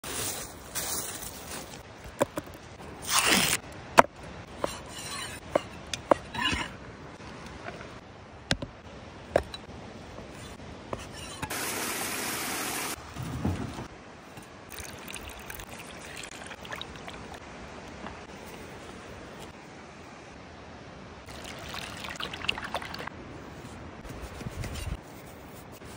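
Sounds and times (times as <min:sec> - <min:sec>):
steady hiss: 0:11.5 - 0:13.1.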